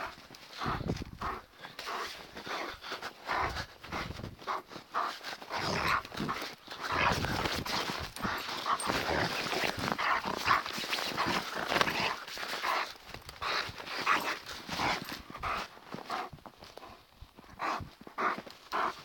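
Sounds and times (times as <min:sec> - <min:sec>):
dog vocalising: 0:05.5 - 0:15.6.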